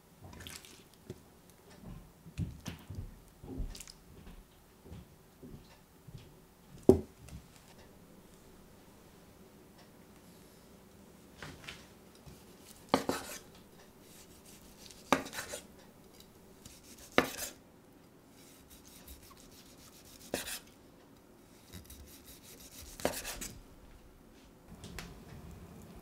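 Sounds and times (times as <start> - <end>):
knife slicing meat on cutting board: 12.9 - 13.4, 14.1 - 15.6, 16.6 - 17.6, 18.4 - 20.6, 21.7 - 23.5.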